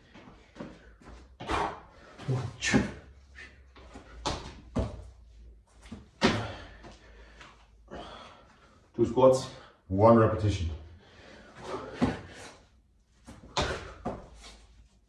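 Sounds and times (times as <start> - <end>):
hands and feet thudding on tiles: 3.8 - 7.1, 11.6 - 12.5, 13.2 - 14.8.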